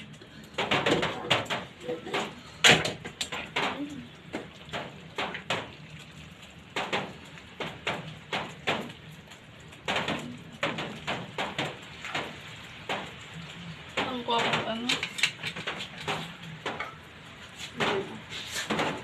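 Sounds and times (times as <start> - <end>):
metal tongs clacking against pan: 14.1 - 17.0.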